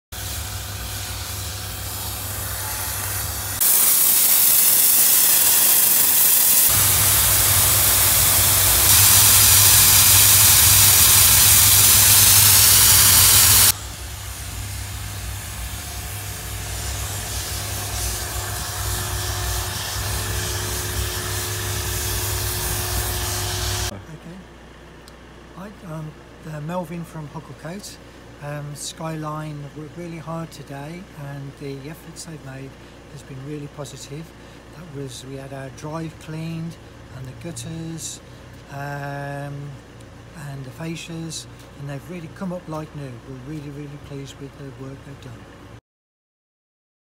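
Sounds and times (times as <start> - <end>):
pressure washer machine hum: 0.2 - 23.9
water jet hissing on slabs: 0.2 - 23.9.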